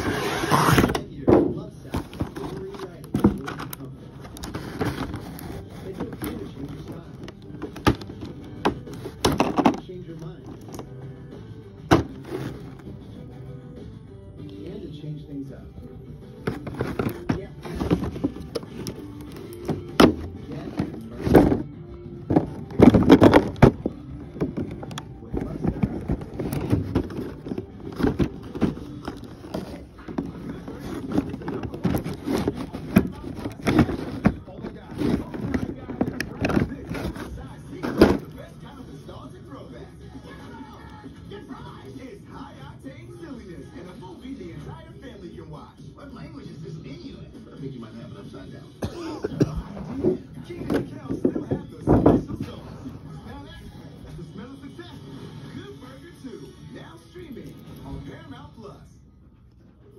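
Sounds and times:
plastic packaging crinkling: 22.3s - 38.3s.

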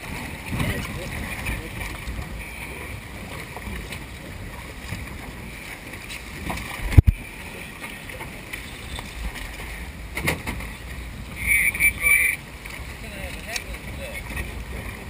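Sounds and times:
water and boat noise: 0.0s - 15.0s
wind on microphone: 8.3s - 12.6s.

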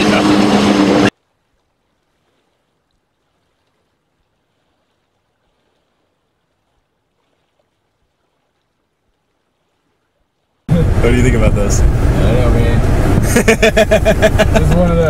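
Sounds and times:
car driving noise: 0.0s - 1.1s, 10.7s - 15.0s.

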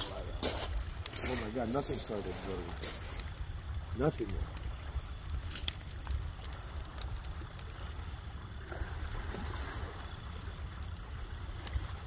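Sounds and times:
bonfire crackling and popping: 0.0s - 12.0s
wind rumble on microphone: 0.0s - 12.0s.

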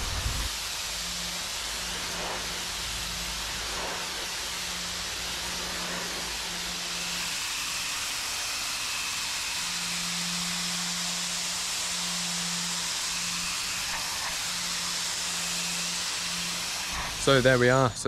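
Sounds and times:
pressure washer jet hissing: 0.0s - 18.0s.

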